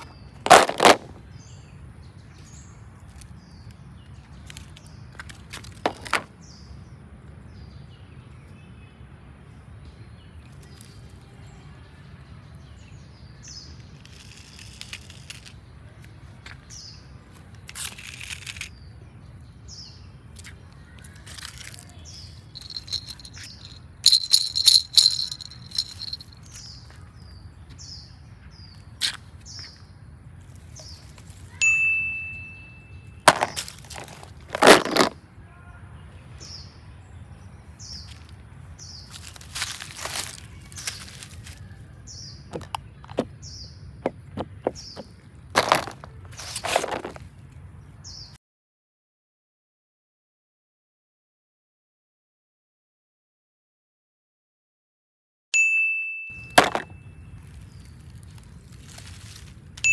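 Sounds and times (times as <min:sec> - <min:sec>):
rustling of dry leaves: 0:00.0 - 0:06.9, 0:10.3 - 0:12.2, 0:12.8 - 0:27.5, 0:30.2 - 0:35.8, 0:37.9 - 0:43.6, 0:44.8 - 0:47.6, 0:56.6 - 0:59.9
bell-like ding: 0:31.6 - 0:32.9, 0:55.6 - 0:57.0.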